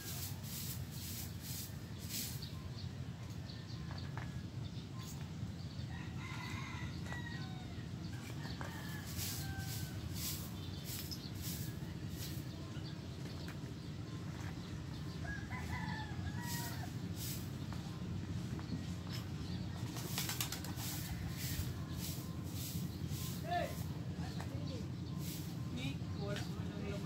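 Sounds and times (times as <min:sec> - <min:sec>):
broom sweeping dirt: 0:00.0 - 0:02.9, 0:08.3 - 0:27.0
chickens calling: 0:05.8 - 0:12.4, 0:14.8 - 0:19.0
rooster crowing: 0:05.9 - 0:10.5, 0:15.2 - 0:16.9.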